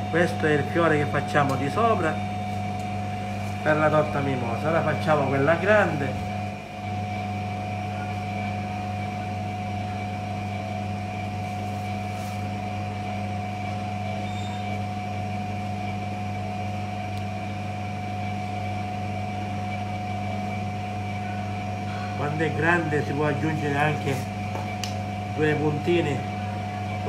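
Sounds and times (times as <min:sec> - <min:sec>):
kitchen equipment humming: 0:00.0 - 0:18.1.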